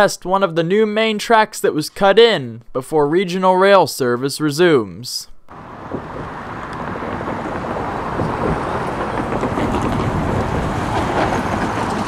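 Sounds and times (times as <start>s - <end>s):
road traffic passing: 5.4s - 12.0s
wind noise on microphone: 5.6s - 12.0s.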